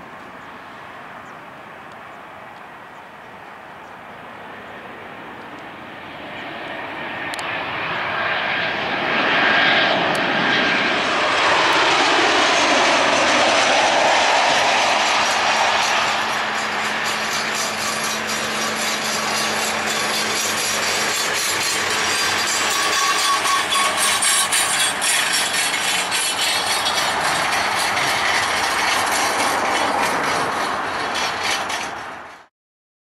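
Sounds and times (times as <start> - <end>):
jet engines roaring on landing: 0.0 - 32.5.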